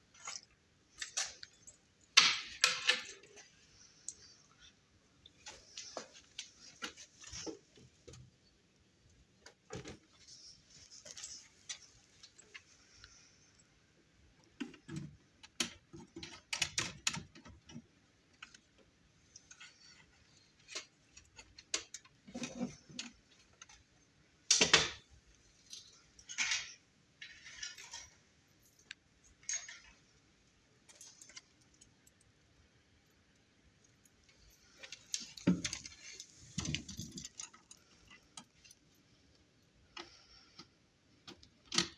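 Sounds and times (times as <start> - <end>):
clicks and clinks of connectors: 0.1 - 7.4, 14.4 - 23.9, 24.5 - 30.1, 33.8 - 39.0.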